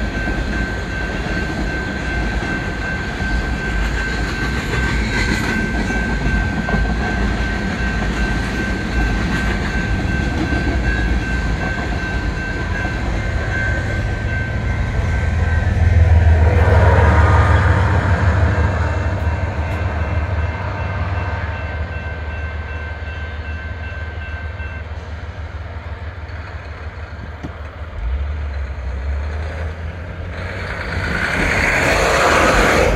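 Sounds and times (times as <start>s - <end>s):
diesel locomotive engine rumble: 0.0s - 32.9s
train wheels rolling on rails: 0.0s - 32.9s
rush of noise: 27.9s - 32.9s.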